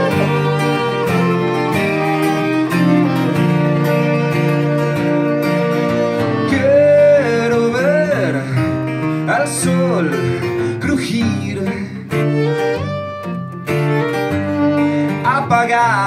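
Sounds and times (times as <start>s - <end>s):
bowed violin: 0.0s - 9.0s, 11.7s - 16.0s
acoustic guitar strumming: 0.0s - 16.0s
man singing: 6.2s - 12.4s, 14.8s - 16.0s.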